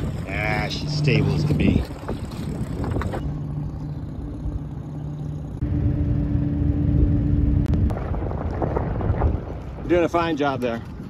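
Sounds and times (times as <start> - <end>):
outboard motor running: 0.0 - 7.9.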